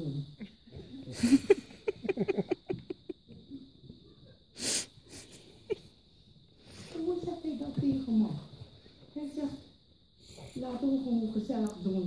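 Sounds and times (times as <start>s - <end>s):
audience laughing: 1.2s - 3.2s.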